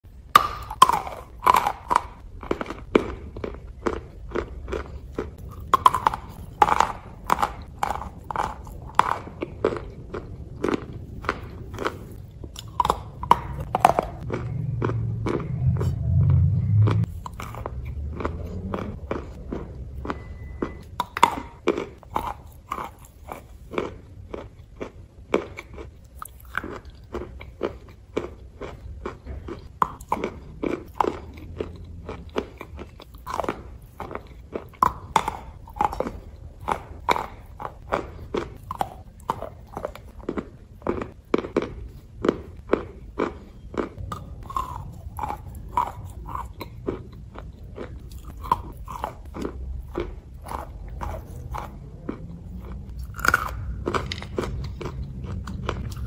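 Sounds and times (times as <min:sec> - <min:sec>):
chewing brittle crunches: 0:00.2 - 0:56.0
low rumble: 0:02.2 - 0:22.1.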